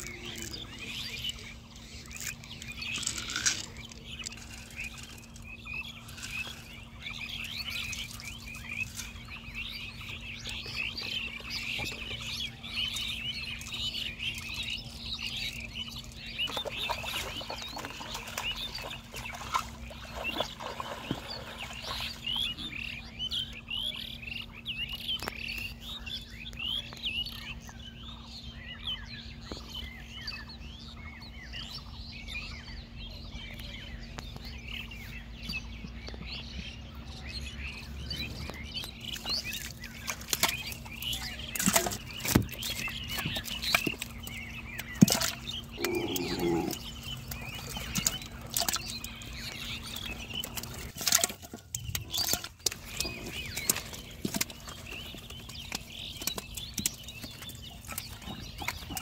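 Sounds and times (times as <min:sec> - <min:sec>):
small birds chirping: 0:00.0 - 0:59.0
fish splashing in shallow water: 0:16.1 - 0:23.0, 0:38.9 - 0:59.0.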